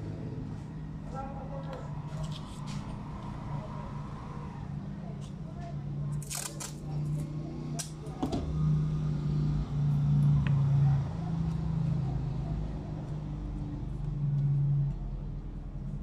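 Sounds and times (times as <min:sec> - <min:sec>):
masking tape tearing: 0:06.2 - 0:06.8.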